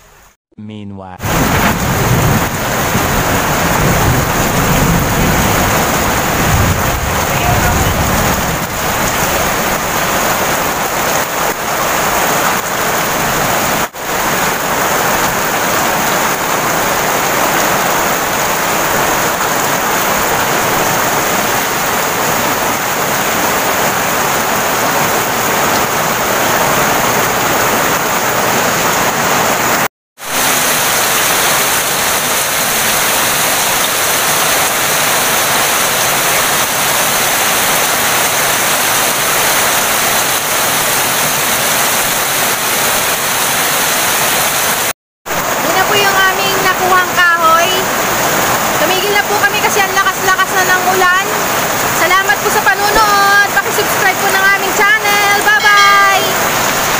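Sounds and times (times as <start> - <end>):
heavy rain on leaves and mud: 1.2 - 56.9.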